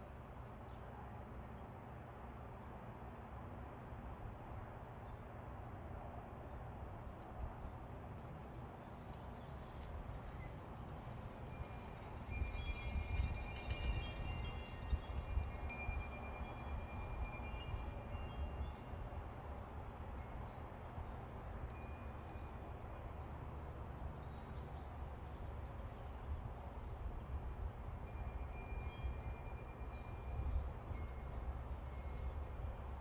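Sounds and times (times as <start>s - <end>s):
metal wind chimes ringing: 11.3s - 19.2s, 28.0s - 33.0s.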